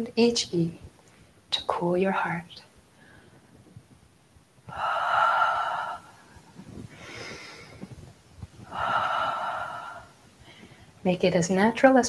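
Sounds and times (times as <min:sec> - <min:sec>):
woman breathy sigh: 0:04.7 - 0:07.9, 0:08.6 - 0:10.8
woman breathing in: 0:04.7 - 0:11.0.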